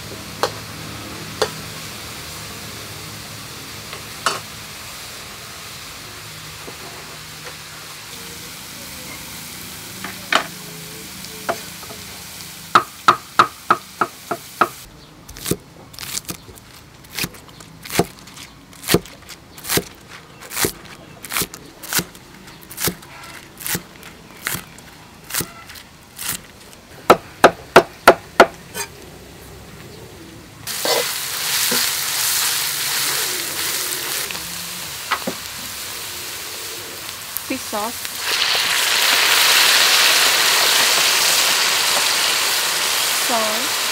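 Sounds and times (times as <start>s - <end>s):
vegetables sizzling in hot oil: 0.0s - 16.4s, 30.7s - 43.9s
knife chopping on wooden board: 18.9s - 19.9s.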